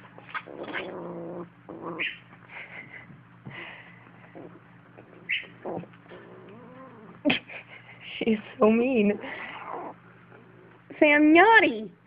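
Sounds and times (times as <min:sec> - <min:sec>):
kitten growling: 0:00.3 - 0:02.2, 0:04.3 - 0:07.4, 0:09.2 - 0:10.9.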